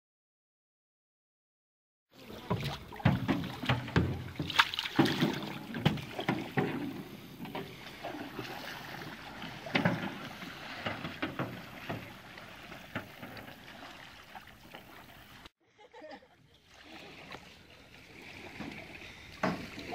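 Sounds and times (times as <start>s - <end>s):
paddles knocking on canoe hulls: 2.2s - 15.4s, 18.4s - 19.9s
paddle splashes: 2.2s - 15.5s, 16.5s - 19.9s
water washing: 2.2s - 15.5s, 16.6s - 19.9s.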